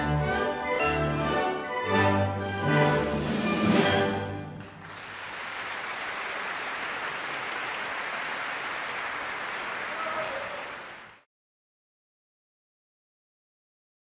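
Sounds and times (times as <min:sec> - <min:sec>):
audience applauding: 0:04.4 - 0:11.3.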